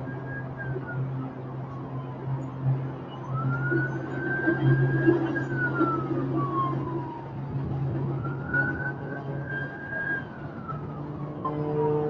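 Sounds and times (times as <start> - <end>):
emergency vehicle siren wailing: 0.0 - 12.0.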